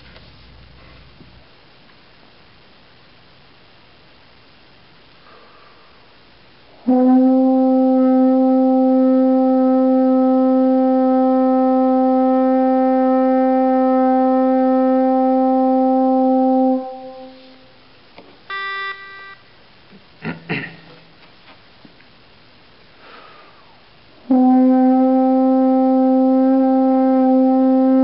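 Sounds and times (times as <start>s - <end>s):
french horn holding a note: 6.8s - 17.8s.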